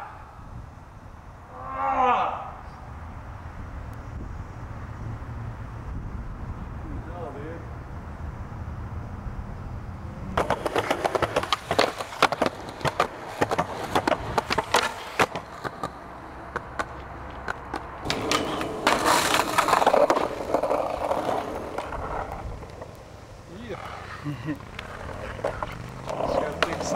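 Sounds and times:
skateboard rolling on concrete: 2.6s - 26.9s
skateboard clacks and knocks: 10.3s - 22.9s, 23.8s - 26.9s.

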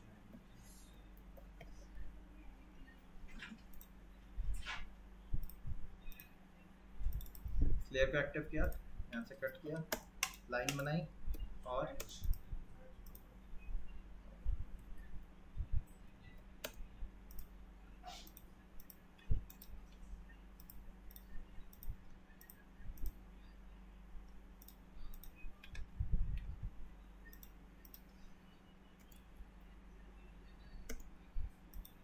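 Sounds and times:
steady low hum: 0.0s - 32.0s
computer mouse clicking: 3.4s - 4.0s, 5.4s - 6.4s, 7.0s - 7.6s, 8.6s - 12.4s, 13.0s - 13.3s, 16.3s - 17.5s, 18.1s - 20.0s, 20.6s - 23.2s, 24.2s - 26.5s, 27.2s - 28.2s, 29.0s - 29.3s, 30.8s - 31.1s, 31.7s - 32.0s.

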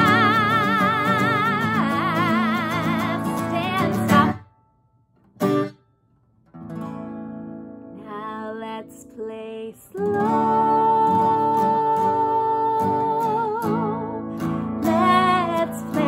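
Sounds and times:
woman singing: 0.0s - 4.5s, 7.9s - 16.0s
acoustic guitar strumming: 0.0s - 8.1s.

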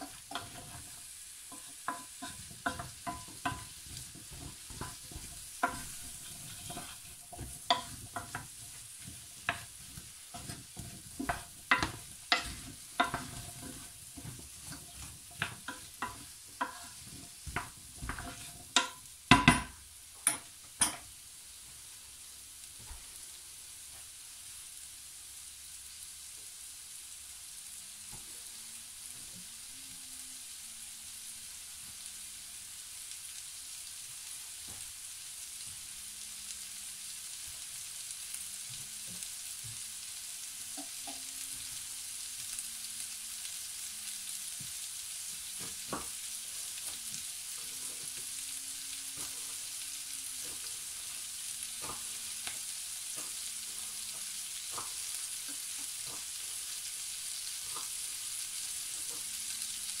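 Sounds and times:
vegetables sizzling in pan: 0.0s - 60.0s.

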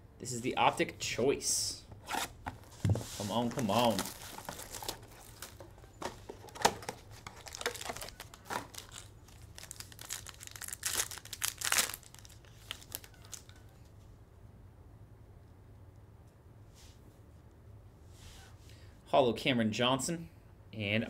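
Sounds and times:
foil wrapper crinkling and tearing: 3.4s - 5.7s, 6.4s - 13.6s.

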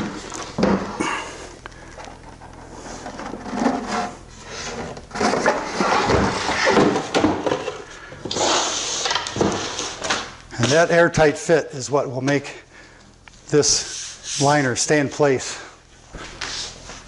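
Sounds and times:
laminate panel scraping against wood: 2.6s - 7.0s.

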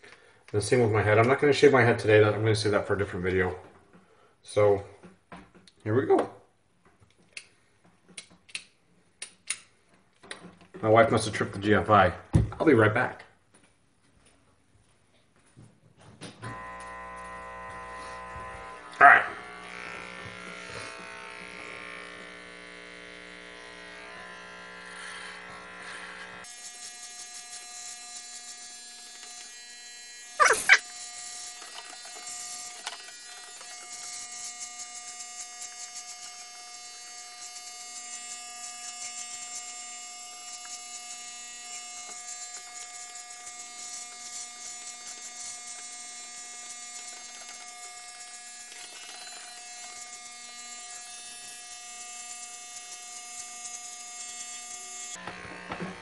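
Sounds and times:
electric hair clippers buzzing: 16.4s - 56.0s.

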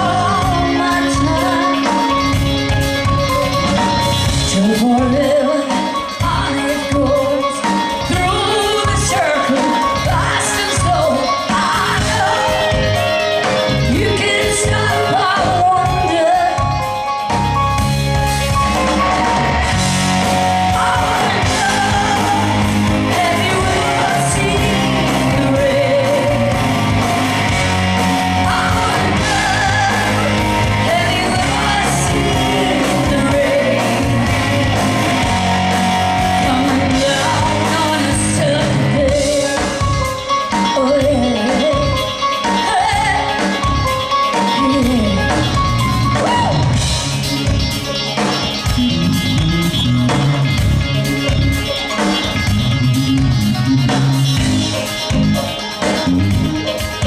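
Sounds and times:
woman singing: 0.0s - 2.4s, 3.7s - 16.9s, 20.6s - 26.8s, 28.0s - 35.3s, 36.2s - 46.6s
rock band playing: 0.0s - 57.0s.

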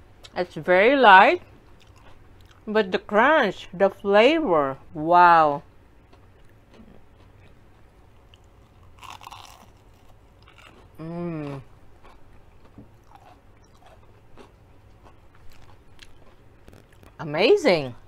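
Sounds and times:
chewing with small crunches: 1.5s - 2.7s, 6.0s - 17.2s
crunchy bite into breaded food: 8.4s - 11.0s
person humming mm: 11.0s - 11.7s.

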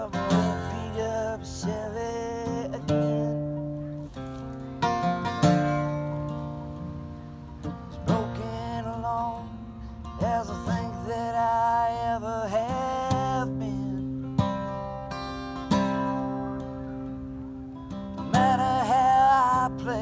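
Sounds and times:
man singing: 0.0s - 3.8s, 7.9s - 14.5s, 18.2s - 20.0s
acoustic guitar strumming: 0.0s - 20.0s.

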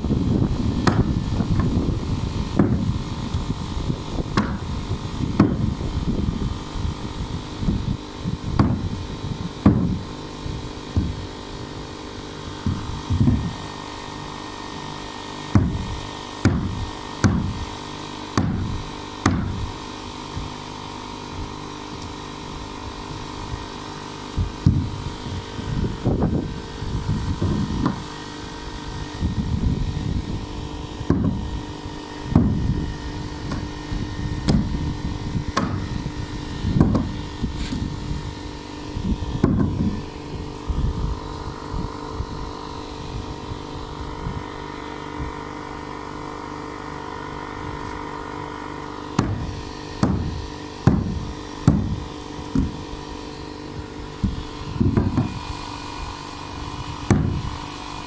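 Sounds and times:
steady hum: 0.0s - 58.0s
sledgehammer thumping plywood: 0.8s - 1.9s, 2.5s - 3.0s, 4.2s - 5.8s, 8.4s - 10.1s, 10.9s - 11.2s, 12.5s - 13.7s, 14.7s - 17.6s, 18.3s - 20.6s, 24.4s - 24.9s, 27.3s - 28.2s, 31.0s - 31.6s, 32.3s - 32.8s, 33.4s - 34.8s, 35.4s - 37.9s, 39.3s - 40.0s, 49.1s - 53.1s, 54.2s - 55.5s, 57.0s - 57.5s.

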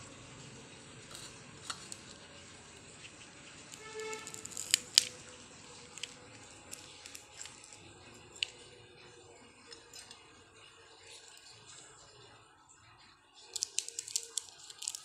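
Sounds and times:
fingers clicking and tapping fruit: 2.9s - 5.2s, 13.5s - 15.0s.

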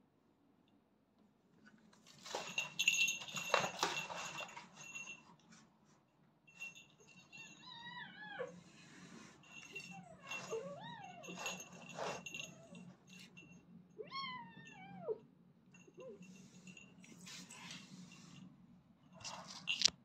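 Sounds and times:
kittens scuffling on tiled floor: 1.9s - 5.7s, 16.3s - 18.5s.

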